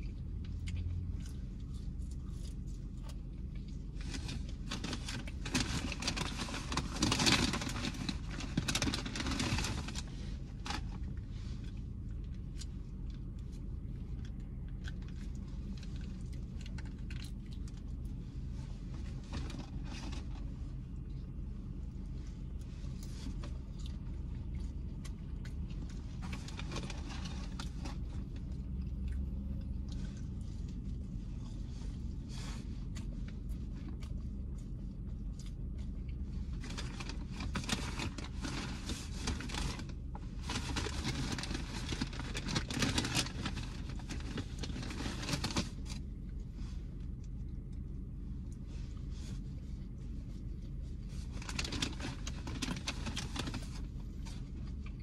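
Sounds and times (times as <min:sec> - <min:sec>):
biting and chewing: 0:00.0 - 0:32.1, 0:32.8 - 0:46.4
low car cabin hum: 0:00.0 - 0:55.0
paper bag and wrappers crinkling: 0:03.9 - 0:12.4, 0:13.2 - 0:20.6, 0:25.7 - 0:28.8, 0:36.4 - 0:46.8, 0:49.2 - 0:55.0.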